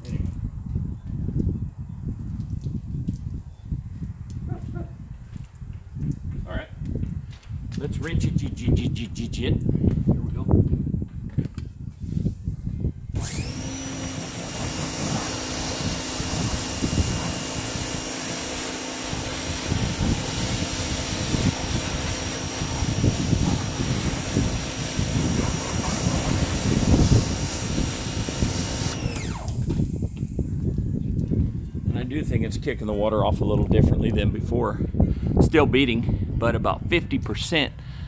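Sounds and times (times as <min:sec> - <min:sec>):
pressure washer motor whine: 0:13.1 - 0:30.4
hiss of water spray: 0:13.6 - 0:30.0
water spattering on surfaces: 0:13.9 - 0:28.9.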